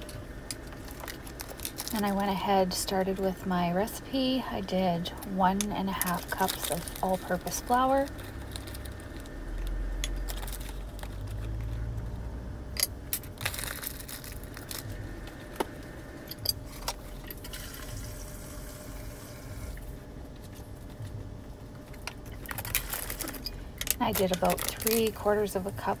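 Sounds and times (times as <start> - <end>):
low rumble of handling: 0.0 - 17.4.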